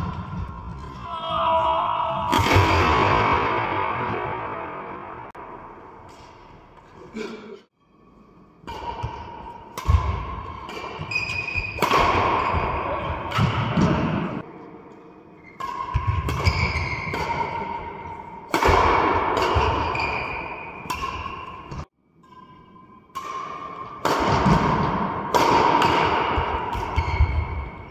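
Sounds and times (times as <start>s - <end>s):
rackets striking shuttlecock: 8.6s - 27.9s.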